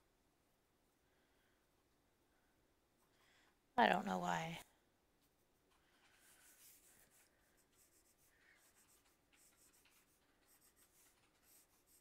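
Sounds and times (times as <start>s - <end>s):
pencil scratching on paper: 6.0s - 12.0s.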